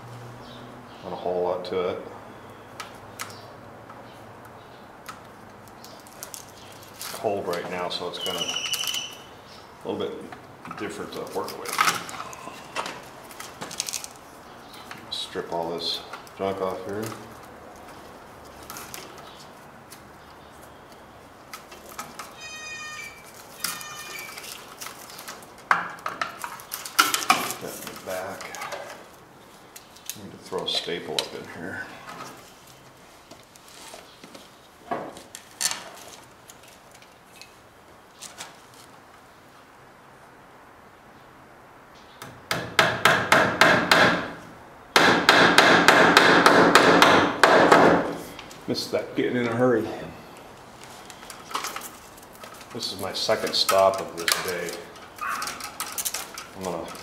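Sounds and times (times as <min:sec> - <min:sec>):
short high-pitched squeaks: 0:08.2 - 0:09.3, 0:22.3 - 0:24.7
electrical cable being stripped: 0:23.2 - 0:29.1, 0:53.4 - 0:57.0
hammer striking staple into wood: 0:42.2 - 0:44.4, 0:45.0 - 0:48.2.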